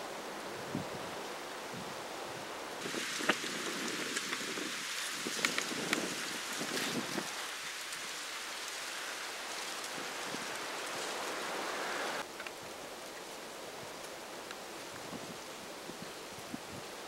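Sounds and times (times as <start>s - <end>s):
wind on microphone: 0.5s - 12.2s.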